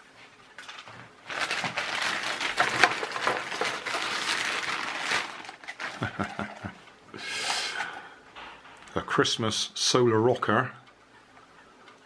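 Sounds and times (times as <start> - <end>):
plastic bag rustling: 1.0 - 6.7.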